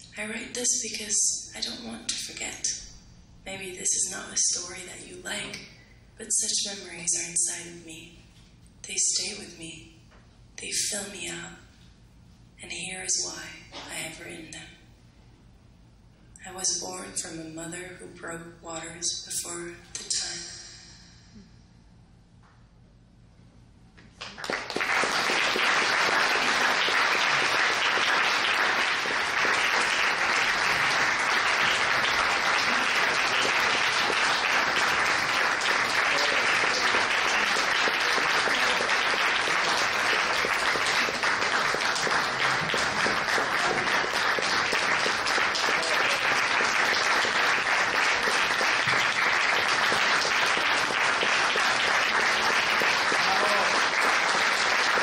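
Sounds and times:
audience applause: 24.2 - 55.0.

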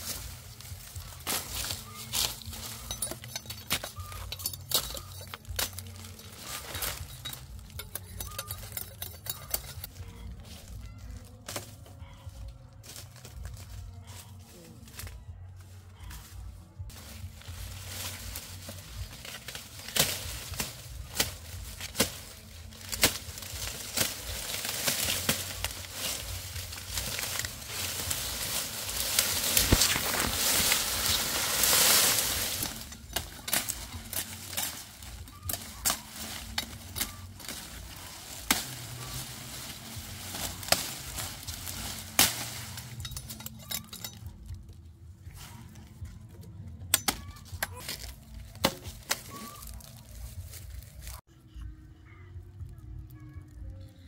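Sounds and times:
sugarcane stalks being chopped: 0.0 - 10.0, 16.9 - 44.2, 46.9 - 51.0
dry leaves rustling: 0.0 - 51.3.

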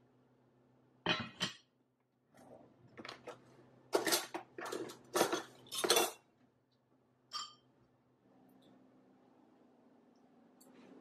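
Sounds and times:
spoons clinking in ceramic bowls: 4.0 - 6.2, 7.3 - 7.7.

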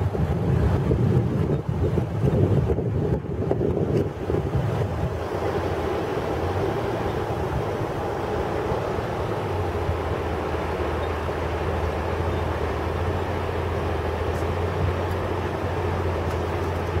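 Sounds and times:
road noise: 0.0 - 17.0
truck engine drone: 0.0 - 17.0.

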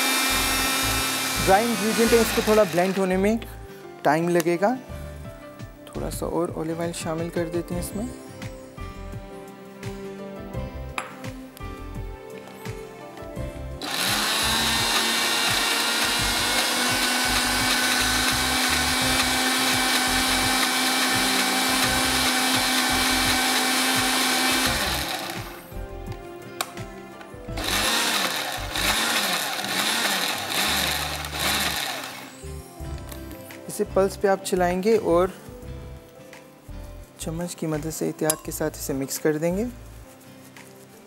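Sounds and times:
electric blender running: 0.0 - 3.3, 13.8 - 25.6, 27.5 - 32.4.

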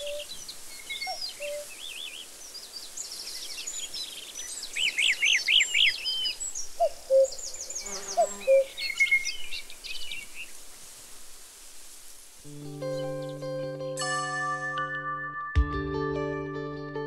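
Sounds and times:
lower whistled bird notes: 0.0 - 2.2, 3.3 - 10.5
small birds chirping and trilling: 0.0 - 10.8
music with held notes: 12.5 - 17.0.

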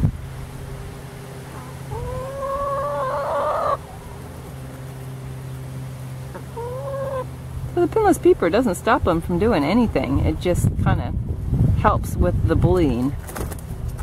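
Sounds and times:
steady low hum: 0.0 - 14.0
chicken call: 1.6 - 4.1, 6.5 - 7.3.

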